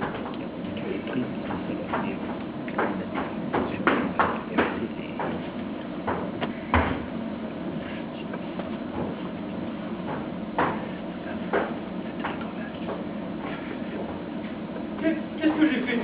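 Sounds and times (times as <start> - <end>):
footsteps on a stage floor: 7.9 - 15.0.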